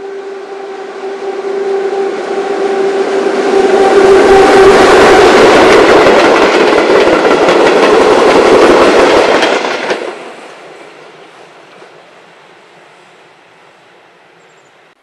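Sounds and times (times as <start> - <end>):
electric locomotive whine: 0.0 - 14.5
train wheels clattering over rail joints: 4.8 - 10.4.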